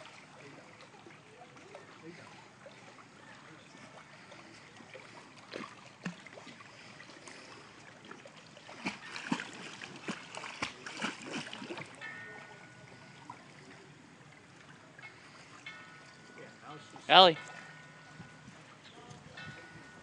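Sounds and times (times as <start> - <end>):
dogs splashing in water: 3.7 - 12.0.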